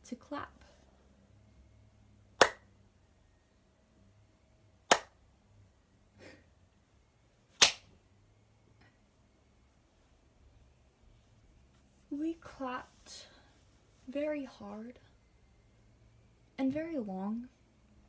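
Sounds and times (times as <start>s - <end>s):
hand claps: 2.4s - 2.6s, 4.9s - 5.1s, 7.6s - 7.8s.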